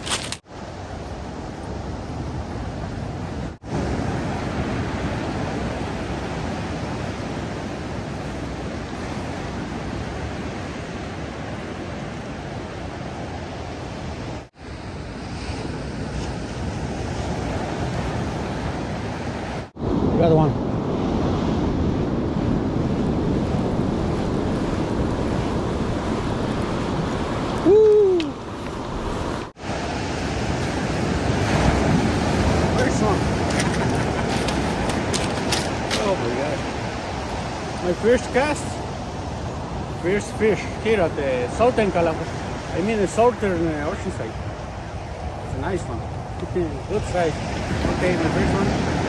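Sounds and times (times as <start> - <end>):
ocean surf breaking on beach: 0.0 - 49.0
wind buffeting microphone: 0.0 - 49.0.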